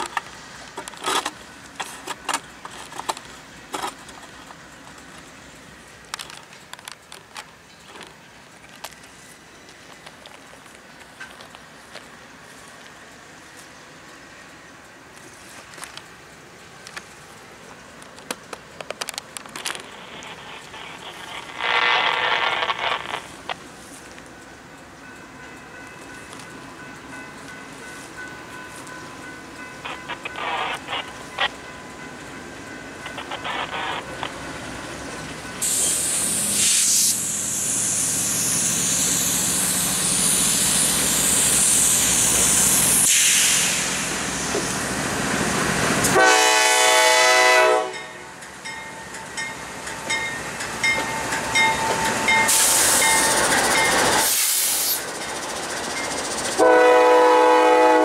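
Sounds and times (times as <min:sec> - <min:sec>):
diesel locomotive engines running: 0:00.0 - 0:58.0
steady hiss: 0:11.6 - 0:24.6, 0:29.8 - 0:46.2, 0:50.4 - 0:56.8
locomotive horn blast: 0:46.1 - 0:48.1, 0:56.6 - 0:58.0.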